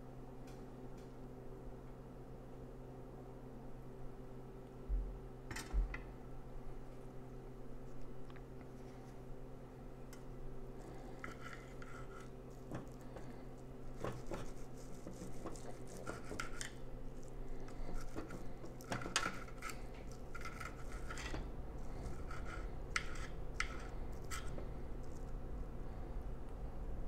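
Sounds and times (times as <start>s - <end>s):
knife and fork scraping plate: 11.0s - 13.3s, 13.9s - 24.6s.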